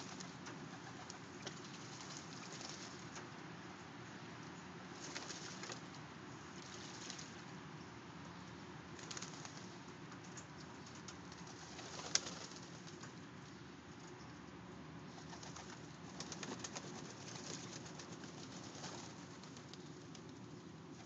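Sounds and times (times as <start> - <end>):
wings fluttering: 0.0 - 3.4, 4.9 - 7.4, 8.9 - 13.2, 15.1 - 21.0.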